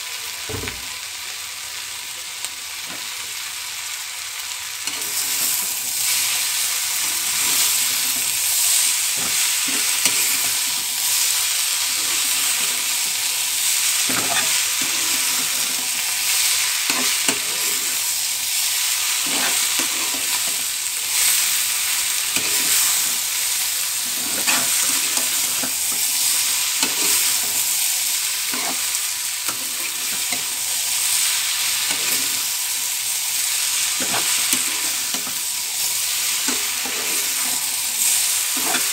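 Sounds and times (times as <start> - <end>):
vegetables sizzling in a pan: 0.0 - 38.9
metal spatula scraping a pan: 4.8 - 13.2, 13.8 - 18.1, 19.1 - 21.6, 22.2 - 27.8, 28.4 - 32.6, 33.7 - 38.9.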